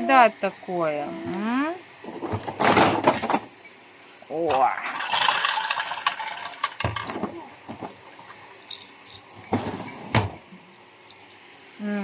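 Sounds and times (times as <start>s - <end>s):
small hard objects rattling: 4.8s - 9.8s.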